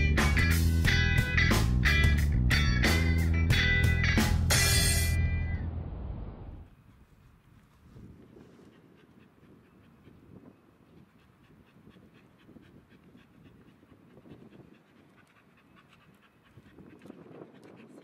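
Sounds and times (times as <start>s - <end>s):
dog panting faintly: 6.8s - 18.0s.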